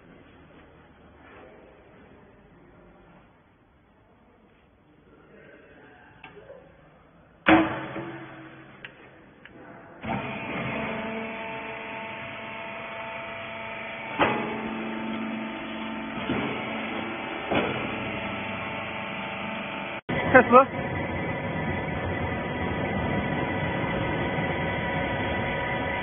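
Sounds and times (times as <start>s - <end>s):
machine clunks: 7.4s - 9.0s, 14.0s - 19.7s
metal door slamming: 7.5s - 8.8s
motor and hydraulic pump humming: 10.0s - 26.0s.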